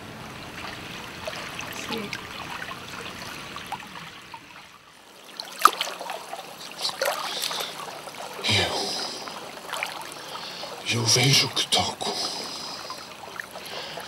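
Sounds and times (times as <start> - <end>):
water trickling and lapping: 0.0 - 14.0
sharp water splashes: 0.2 - 14.0.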